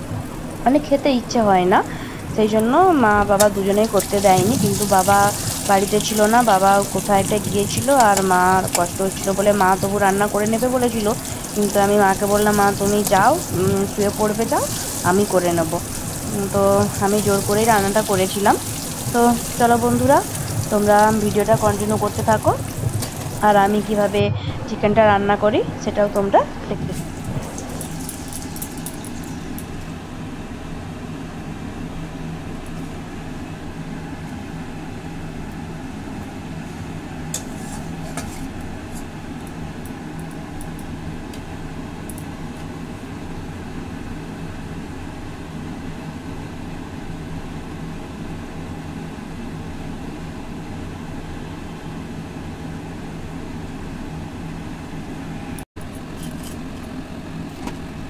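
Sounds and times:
low machine hum: 0.0s - 58.0s
hot oil crackling in wok: 3.3s - 24.2s, 26.9s - 29.9s.

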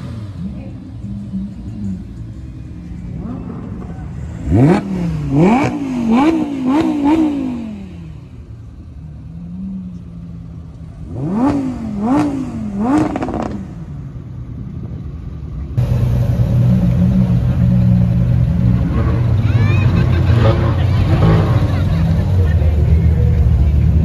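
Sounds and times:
car engine idling: 0.0s - 6.2s, 7.7s - 24.0s
car engine rev blips: 0.0s - 8.4s, 11.0s - 13.9s
car engine running at low revs: 0.0s - 24.0s.

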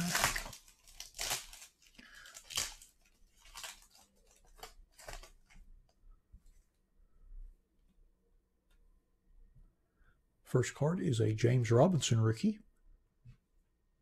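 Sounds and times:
foil wrapper tearing and crinkling: 0.0s - 5.6s.

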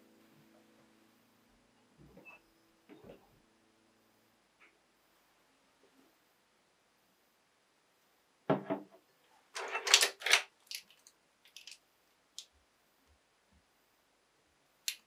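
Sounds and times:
plastic markers clacking: 9.9s - 11.8s.

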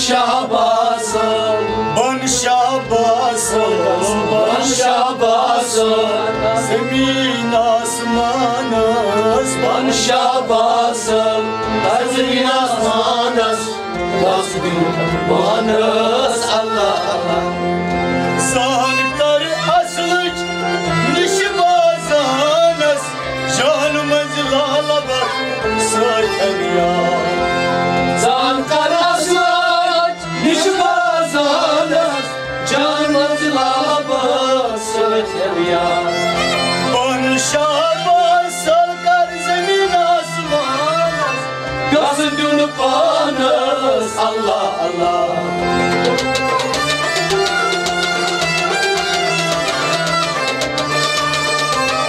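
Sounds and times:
bowed string instruments: 0.0s - 52.0s
harmonium: 0.0s - 52.0s
drum strokes: 46.0s - 52.0s.

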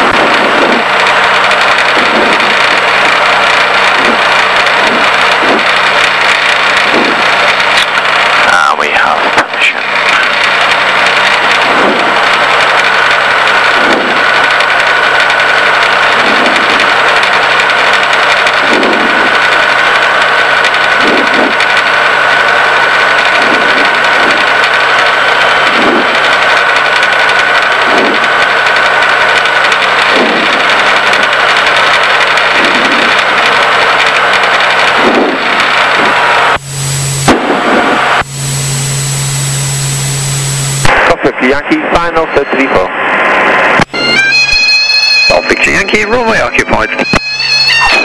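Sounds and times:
aircraft engine droning: 0.0s - 48.0s
steady high whine: 0.0s - 48.0s.

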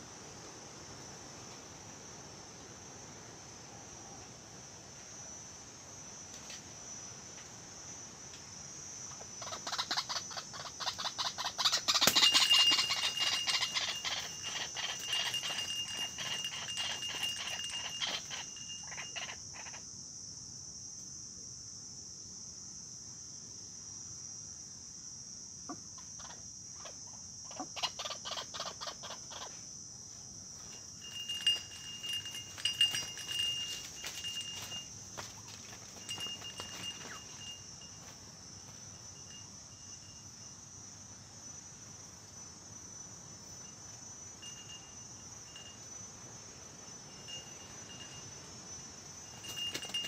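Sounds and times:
high insect buzz: 4.8s - 50.0s
birds calling in harsh pulses: 9.4s - 19.8s.

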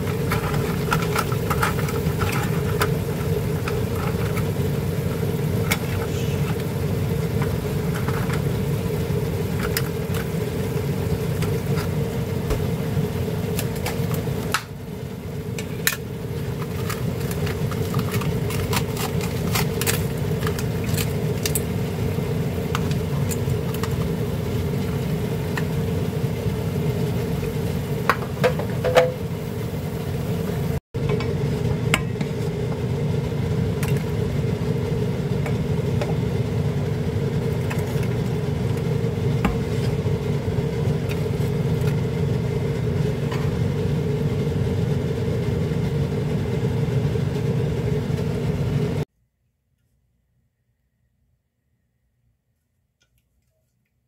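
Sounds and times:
scallops sizzling in a frying pan: 0.0s - 30.8s
machine-like hum: 0.0s - 49.1s.

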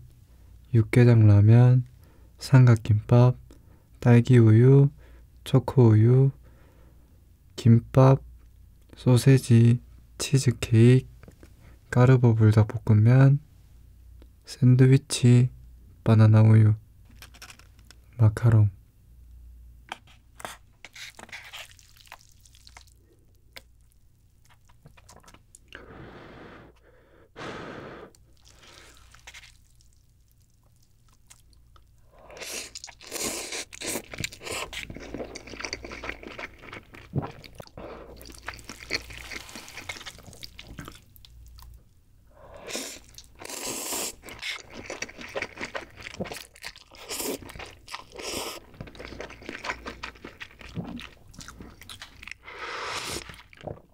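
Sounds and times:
slurping noodles: 27.4s - 29.3s, 42.5s - 51.7s, 52.4s - 53.6s.

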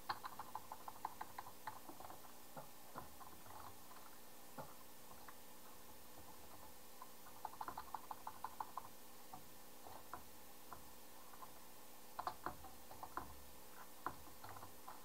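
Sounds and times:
keyboard typing: 0.0s - 5.4s, 6.2s - 8.9s, 12.2s - 15.0s
faint steady hum: 0.0s - 15.0s.

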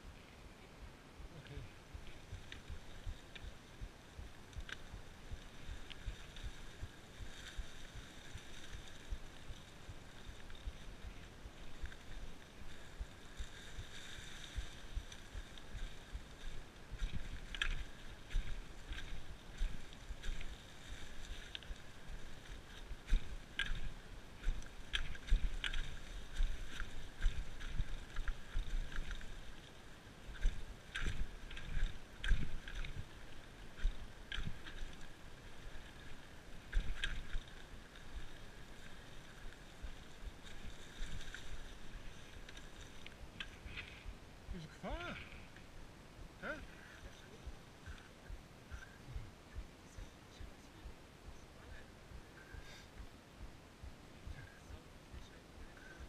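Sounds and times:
wind on microphone: 0.0s - 56.0s
bike tyres rumbling on dirt: 1.9s - 45.5s.

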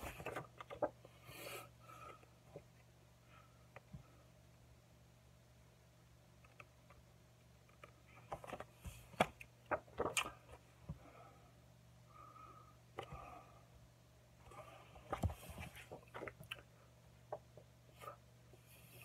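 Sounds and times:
photo prints clicking and rustling: 0.0s - 1.0s, 7.6s - 10.6s
faint low hum: 0.0s - 19.0s.

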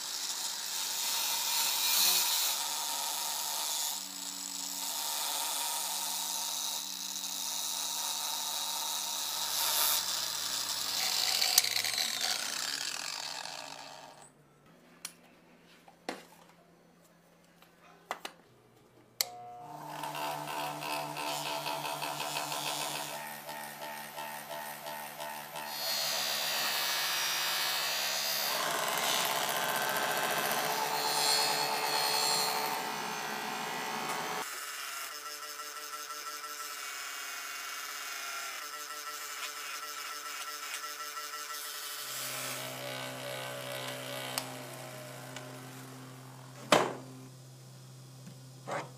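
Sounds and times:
bench grinder grinding metal: 0.0s - 14.3s, 19.2s - 47.2s
power tool blowing air: 19.7s - 34.5s.

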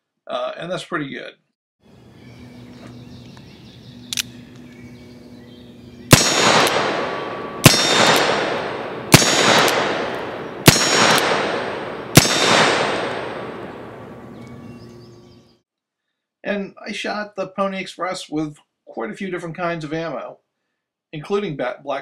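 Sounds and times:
faint click: 4.1s - 4.8s
revolver shots with long echo: 5.8s - 15.2s.

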